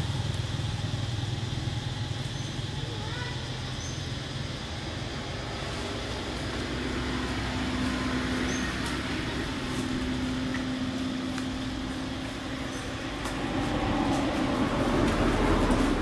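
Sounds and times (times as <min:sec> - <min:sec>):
distant motor vehicle humming: 0:00.0 - 0:16.0
outdoor background noise: 0:00.0 - 0:16.0.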